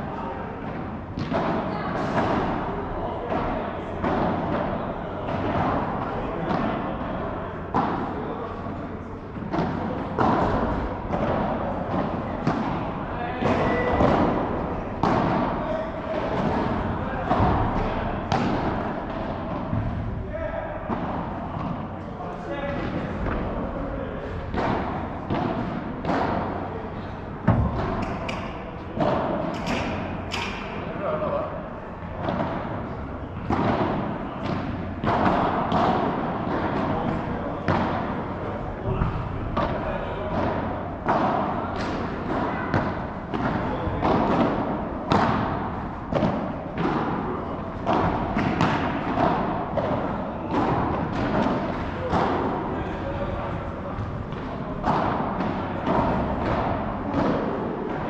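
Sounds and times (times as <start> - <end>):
ball struck by rackets: 0.6 - 2.6, 9.4 - 20.1, 24.4 - 26.7, 27.4 - 30.8, 32.1 - 38.2, 38.9 - 52.7, 53.9 - 58.0.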